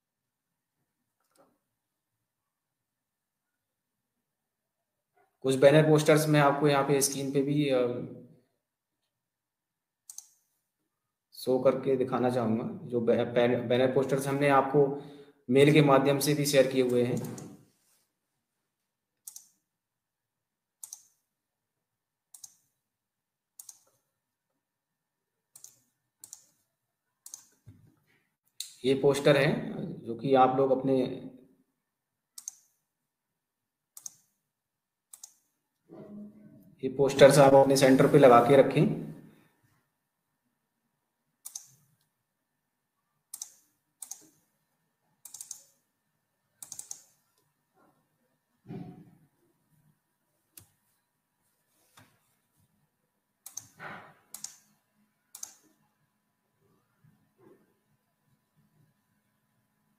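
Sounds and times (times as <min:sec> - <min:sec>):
computer mouse clicking: 0:10.0 - 0:10.6, 0:16.8 - 0:17.6, 0:19.2 - 0:19.7, 0:20.8 - 0:21.3, 0:22.3 - 0:22.8, 0:23.6 - 0:24.1, 0:25.5 - 0:27.8, 0:32.4 - 0:32.8, 0:33.9 - 0:34.4, 0:35.1 - 0:35.6, 0:41.4 - 0:42.1, 0:43.3 - 0:44.5, 0:45.2 - 0:45.8, 0:46.6 - 0:47.5, 0:53.4 - 0:55.8.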